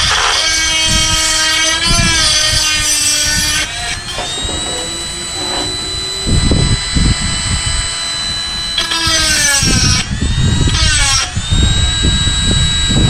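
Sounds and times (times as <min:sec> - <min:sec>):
rotary tool grinding metal: 0:01.6 - 0:09.7
low knocks: 0:01.8 - 0:10.0.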